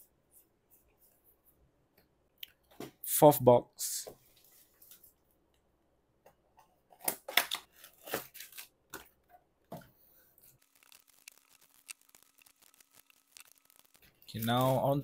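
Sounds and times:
foil packs crinkling: 0:10.6 - 0:14.8.

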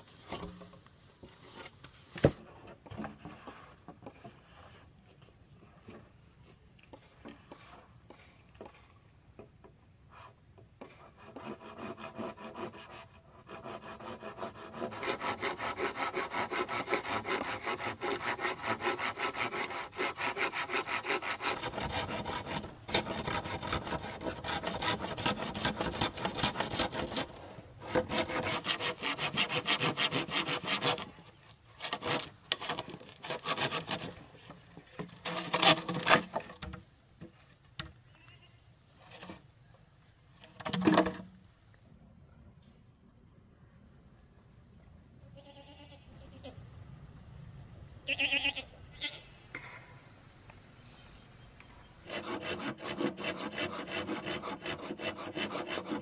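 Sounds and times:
hand saw cutting wood: 0:10.1 - 0:36.8, 0:52.0 - 0:56.0.

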